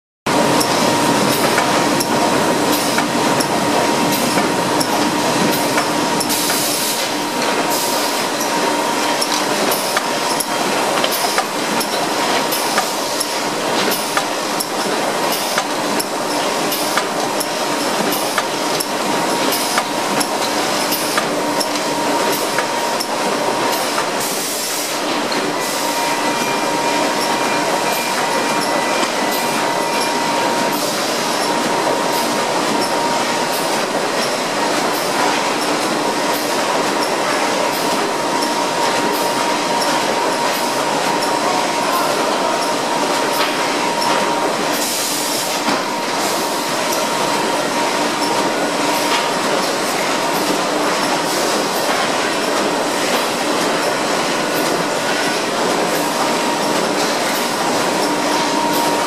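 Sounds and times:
steady machine whine: 0:14.2 - 0:59.0.

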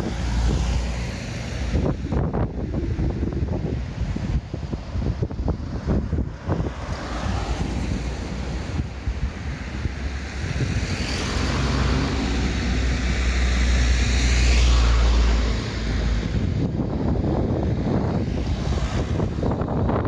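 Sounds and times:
vehicle engine hum and tyre noise: 0:00.0 - 0:20.0.

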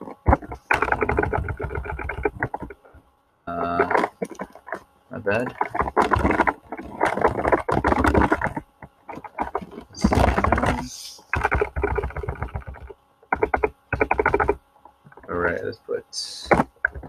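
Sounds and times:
keyboard typing clicks: 0:09.2 - 0:14.6.

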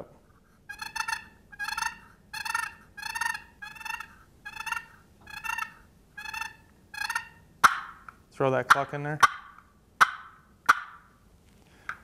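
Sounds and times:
turkey box call purrs: 0:00.6 - 0:08.0.

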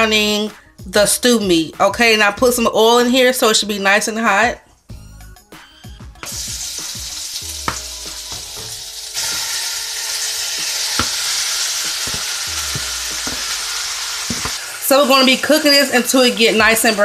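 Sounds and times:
meat pieces knocking in pan: 0:06.2 - 0:14.8
meat sizzling in hot oil: 0:06.2 - 0:17.0.

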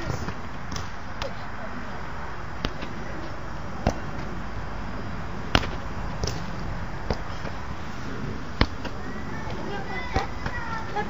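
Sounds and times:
steady outdoor hiss: 0:00.0 - 0:11.0.

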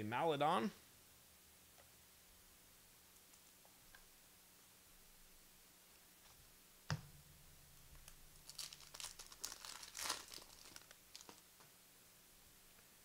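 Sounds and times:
wrapper crinkling: 0:08.0 - 0:11.5.

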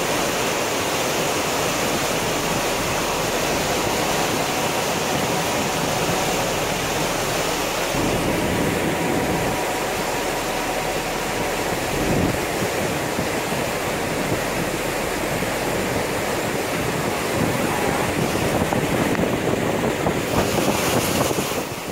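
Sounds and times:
water rushing: 0:00.0 - 0:21.9
wind noise on microphone: 0:00.0 - 0:21.9.

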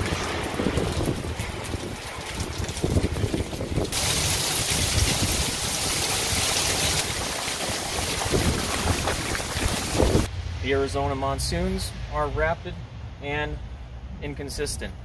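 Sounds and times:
heavy rain hissing: 0:00.0 - 0:10.3
wind rumbling on microphone: 0:00.0 - 0:10.3.

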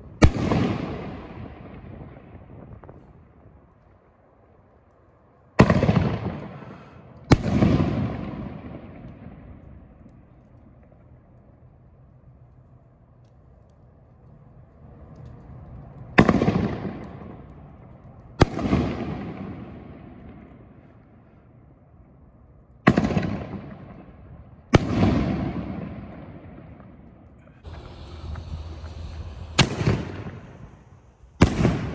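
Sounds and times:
rolling rumble: 0:07.9 - 0:20.8, 0:25.5 - 0:31.9
long echoing rumble: 0:23.2 - 0:31.9
firework shell bangs: 0:27.6 - 0:31.9.

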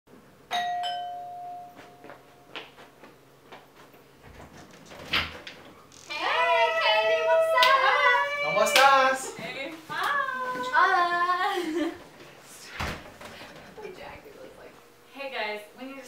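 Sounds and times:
doorbell chime: 0:00.5 - 0:02.6
light footsteps: 0:01.7 - 0:04.6
door opening: 0:04.2 - 0:06.3
women squealing excitedly: 0:06.1 - 0:08.8.

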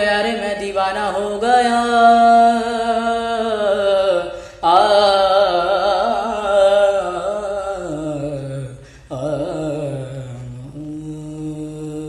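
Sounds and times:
man singing devotional song: 0:00.0 - 0:12.0.

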